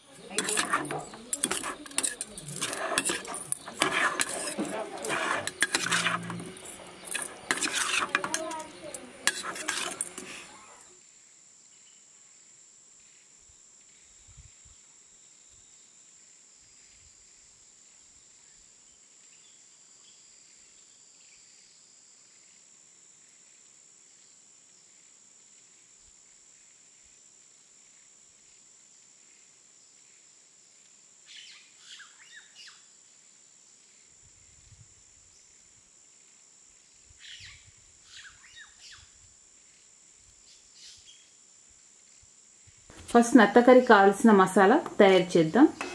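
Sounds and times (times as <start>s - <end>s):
metal spoon scraping steel bowl: 0.0s - 10.8s, 42.9s - 45.9s.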